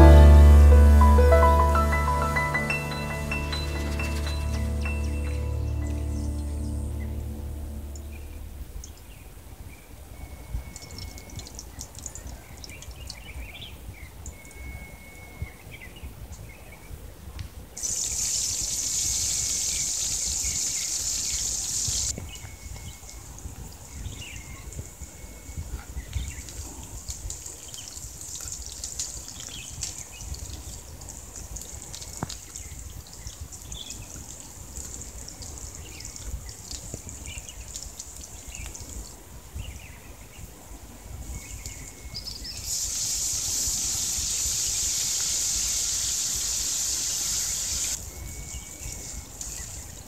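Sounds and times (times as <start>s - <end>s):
onions sizzling in hot oil: 17.8s - 22.1s, 42.6s - 48.0s.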